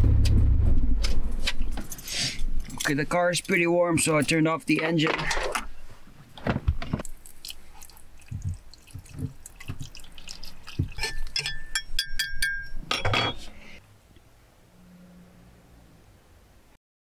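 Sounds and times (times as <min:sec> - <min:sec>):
water pouring into mug: 0:07.0 - 0:11.4.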